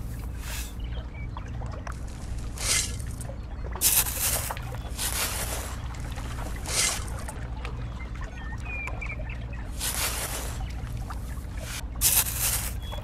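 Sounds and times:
low background rumble: 0.0 - 13.0
metal shovel scraping damp sand: 0.4 - 0.8, 3.8 - 5.7, 9.8 - 10.6, 12.0 - 12.8.

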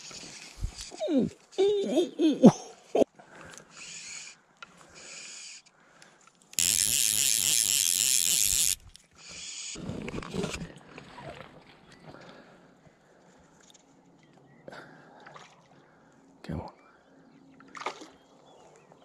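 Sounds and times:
fishing reel ratchet buzzing: 6.6 - 9.5.

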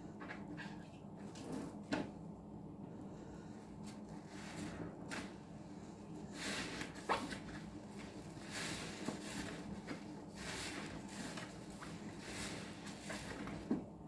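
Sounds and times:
sponge squelching in soap suds: 6.3 - 13.7.

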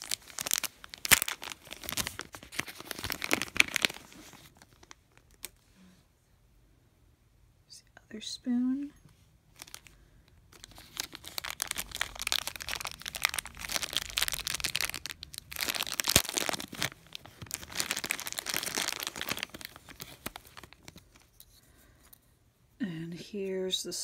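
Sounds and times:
plastic bag crinkling: 0.0 - 5.6, 9.5 - 21.4.

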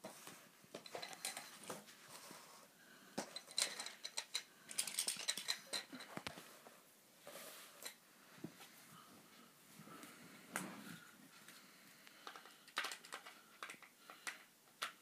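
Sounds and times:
plastic toy track clattering: 3.2 - 6.2, 12.2 - 15.0.

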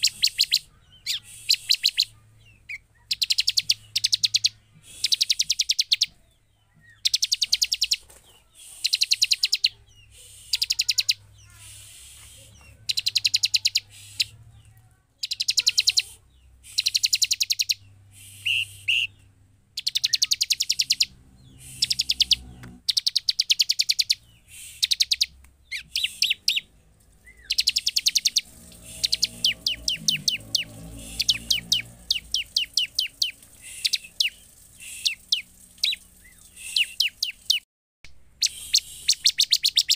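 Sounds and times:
bird calling rapid ticking notes: 0.0 - 2.1, 3.1 - 6.2, 7.0 - 8.0, 12.9 - 13.9, 16.7 - 17.8, 19.8 - 21.1, 21.7 - 26.7, 27.3 - 37.6, 38.4 - 39.9.

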